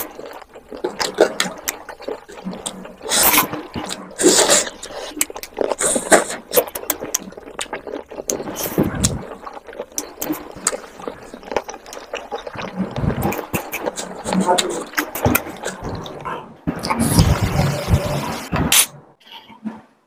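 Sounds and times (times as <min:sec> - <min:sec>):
wet chewing: 0:00.0 - 0:18.9
lip-smacking clicks: 0:00.5 - 0:16.2.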